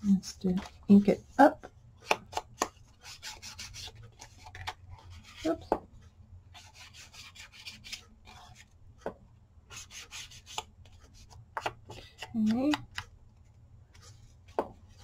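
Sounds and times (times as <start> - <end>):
dry scratchy rubbing on paper: 6.5 - 8.7, 9.7 - 11.3.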